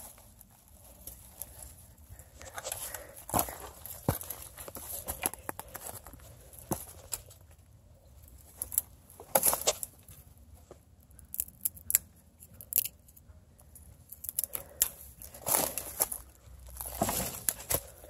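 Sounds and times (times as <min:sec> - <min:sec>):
footsteps crunching through dry leaves: 0:15.4 - 0:18.0.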